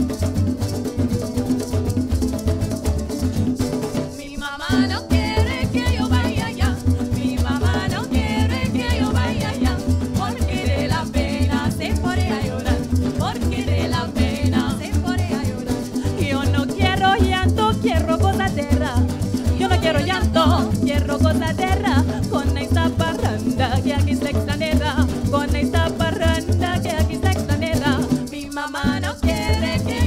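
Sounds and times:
guitar and cuatros strumming: 0.0 - 30.0
shaker keeping time: 0.0 - 30.0
voices singing: 4.2 - 22.3, 25.8 - 30.0.

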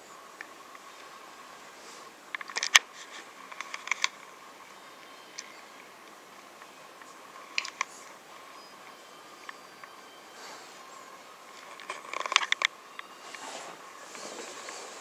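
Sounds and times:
faint steady whine: 0.0 - 15.0.

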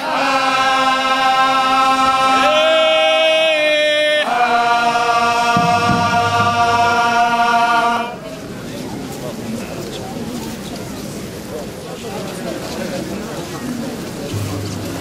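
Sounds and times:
men chanting without accompaniment: 0.0 - 8.2.

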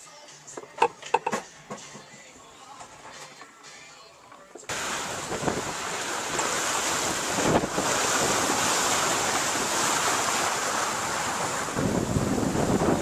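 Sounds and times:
waves against sailboat: 4.7 - 13.0
wind rushing: 4.7 - 13.0
wind buffeting microphone: 5.0 - 13.0.

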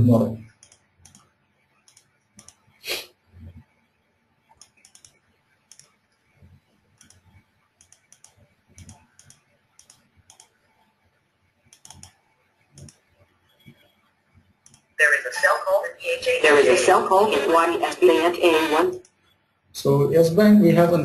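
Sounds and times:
computer keyboard clicks and taps: 0.6 - 2.6, 4.5 - 6.0, 7.0 - 7.2, 7.8 - 10.6, 11.7 - 12.2.

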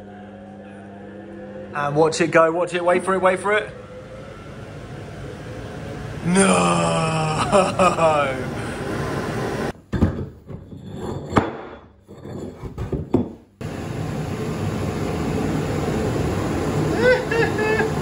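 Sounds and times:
organ blower air rush and hum: 0.0 - 9.8, 13.6 - 18.0.

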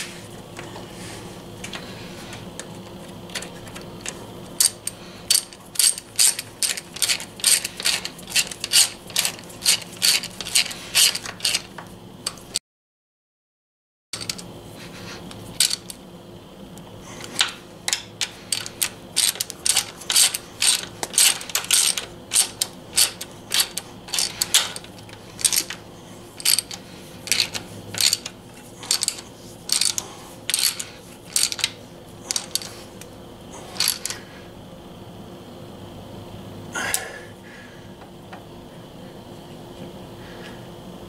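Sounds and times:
socket ratchet clicking: 17.4 - 25.8, 26.4 - 32.7.

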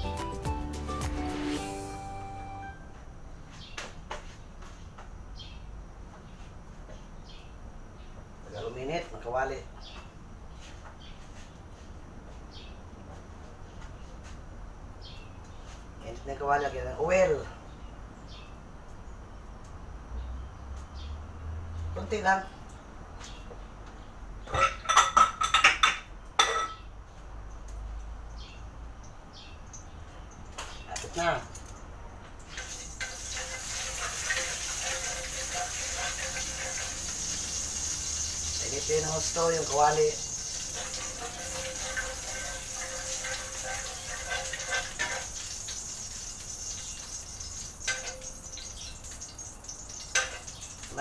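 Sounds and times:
kitchenware clinking: 24.5 - 26.9, 40.2 - 48.8, 49.9 - 51.0
oil hissing in a wok: 32.5 - 51.0
metal ladle scraping a pan: 32.6 - 38.6, 40.3 - 48.3.

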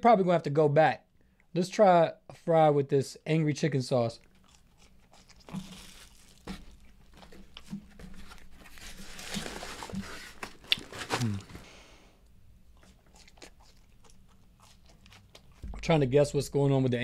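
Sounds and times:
person chewing crunchy food: 4.2 - 7.7, 12.7 - 15.8.

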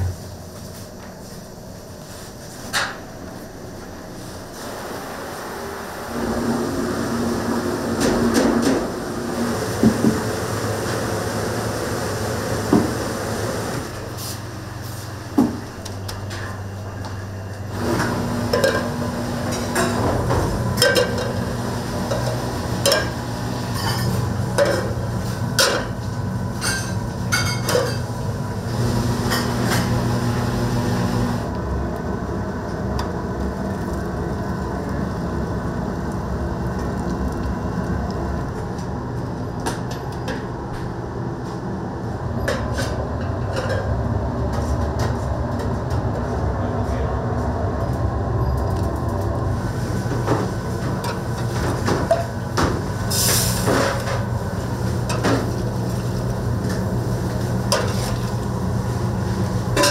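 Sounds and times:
utensils and dishes clinking: 22.1 - 25.0, 26.6 - 28.1.

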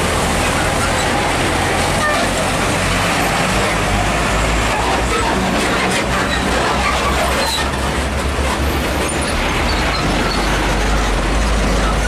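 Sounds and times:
trailer clattering on road: 0.0 - 12.0
truck engine rumbling: 0.0 - 12.0.

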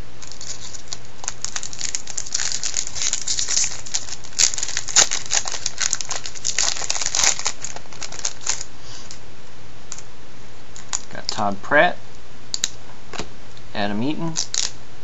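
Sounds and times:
card pack wrapper crinkling: 0.2 - 9.2, 14.3 - 14.8.

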